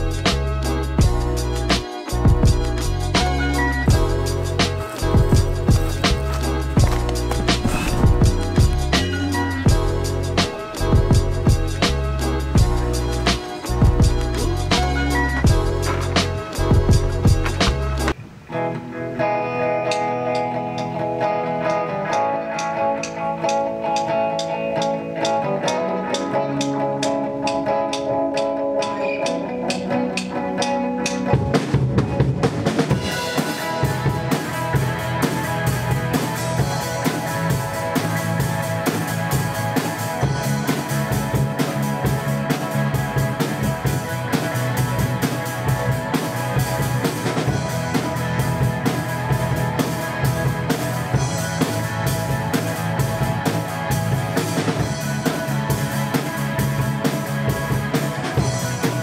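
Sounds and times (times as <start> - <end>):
drum kit fill: 3.3 - 18.2
guitar chords ringing: 18.4 - 31.1
live band playing: 19.8 - 59.0.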